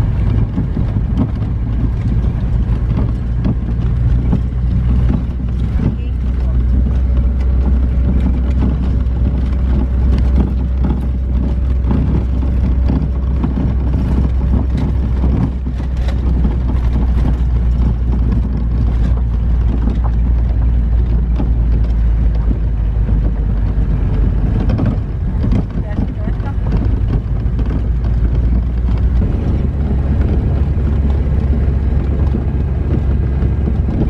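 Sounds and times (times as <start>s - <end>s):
small knocks and rattles: 0.0s - 34.0s
vehicle engine and road rumble: 0.0s - 34.0s
wind noise: 0.0s - 34.0s.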